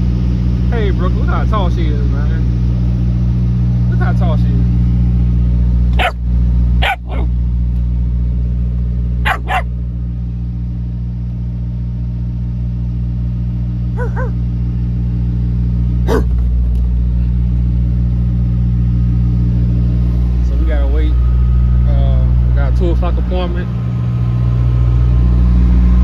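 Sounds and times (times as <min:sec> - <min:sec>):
diesel truck engine idling: 0:00.0 - 0:11.4, 0:13.6 - 0:26.0
puppy yipping: 0:06.0 - 0:06.2, 0:06.8 - 0:07.3, 0:09.2 - 0:09.7, 0:14.0 - 0:14.4, 0:16.1 - 0:16.3.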